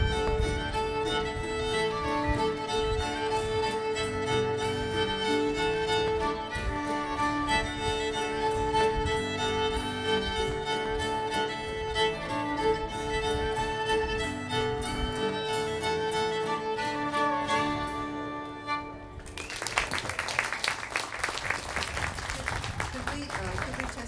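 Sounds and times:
fiddle melody: 0.0 - 24.0
string band playing: 0.0 - 24.0
audience applause: 19.2 - 24.0.

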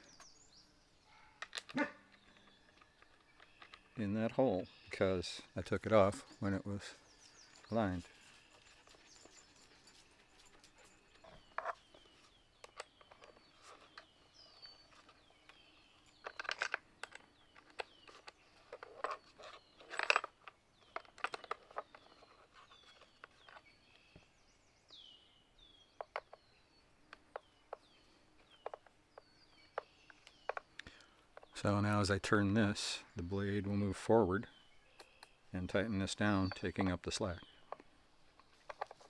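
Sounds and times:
birds chirping: 0.0 - 39.0
metal clinks and plastic clicks: 1.4 - 4.4, 12.6 - 23.7.

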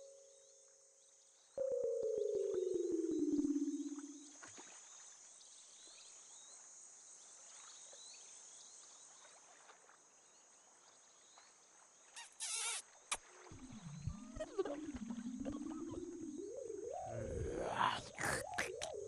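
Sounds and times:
small chirps: 12.1 - 16.4.

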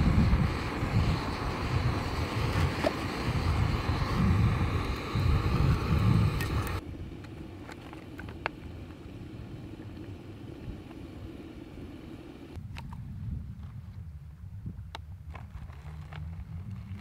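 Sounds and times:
gas stove burning: 0.0 - 12.6.

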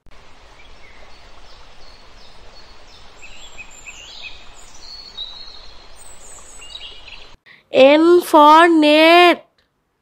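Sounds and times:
small birds chirping: 0.5 - 7.4.

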